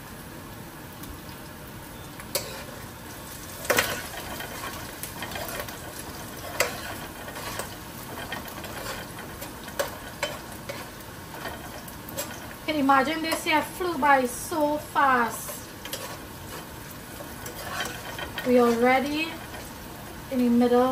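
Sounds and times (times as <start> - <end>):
vegetables sizzling in a pot: 0.0 - 20.9
utensil scraping a pot: 2.3 - 2.8, 3.6 - 12.7, 15.3 - 20.2.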